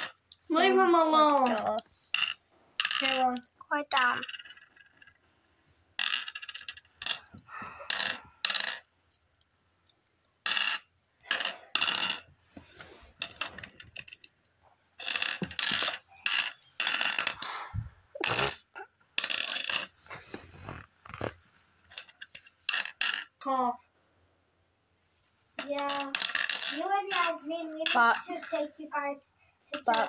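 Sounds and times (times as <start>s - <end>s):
glass stones clinking: 6.0s - 9.4s, 15.0s - 17.4s.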